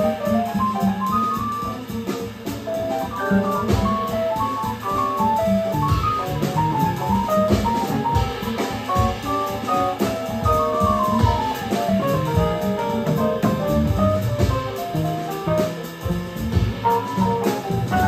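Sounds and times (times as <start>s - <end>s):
drum kit with cymbals: 0.0s - 18.0s
upright bass walking: 0.0s - 18.0s
keyboard melodic run: 2.8s - 18.0s.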